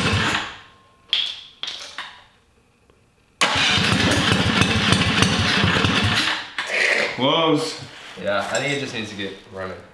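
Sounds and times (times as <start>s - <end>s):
small engine starting: 3.4s - 7.1s.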